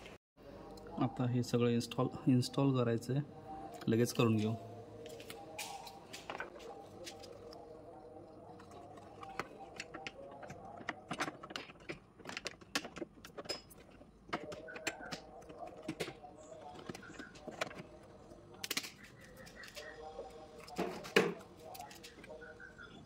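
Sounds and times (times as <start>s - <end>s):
metal tools clicking and clinking: 9.8s - 15.2s.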